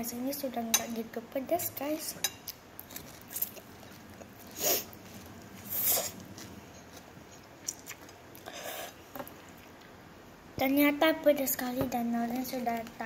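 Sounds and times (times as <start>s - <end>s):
child slurping noodles: 4.5s - 5.0s, 5.6s - 6.3s.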